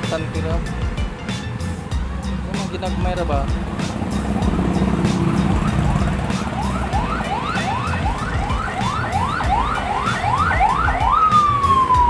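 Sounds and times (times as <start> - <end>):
electronic siren whooping: 4.3 - 12.0.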